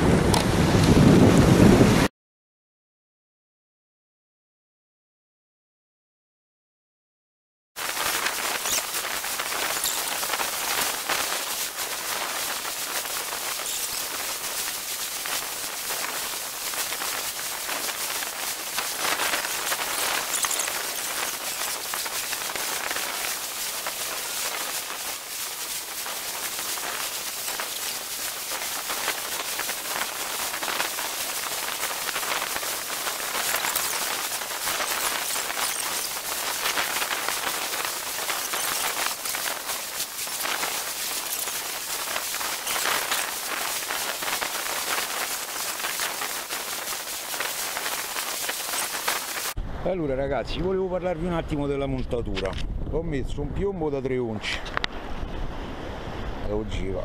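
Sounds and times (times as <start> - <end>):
small waves breaking on sand: 7.8 - 49.6.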